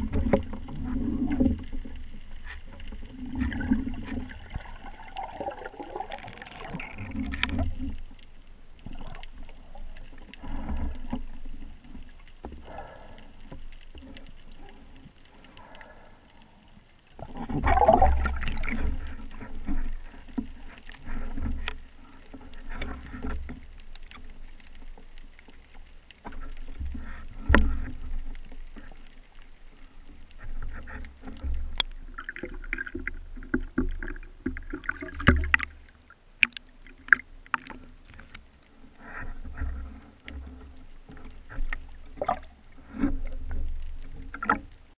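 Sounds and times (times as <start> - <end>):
water rushing: 0.0 - 13.2, 17.2 - 24.2, 29.8 - 44.8.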